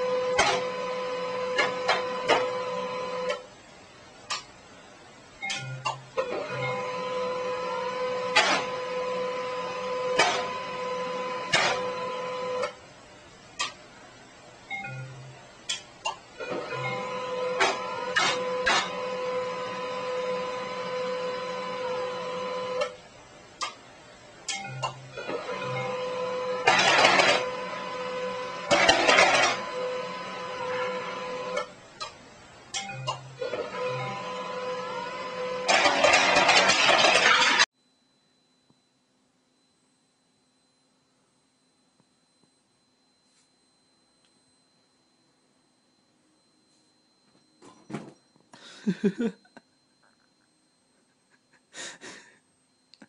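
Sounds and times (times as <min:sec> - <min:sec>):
printer motor whine: 0:00.0 - 0:03.5, 0:05.5 - 0:13.0, 0:16.3 - 0:23.1, 0:24.5 - 0:31.8, 0:32.7 - 0:38.8.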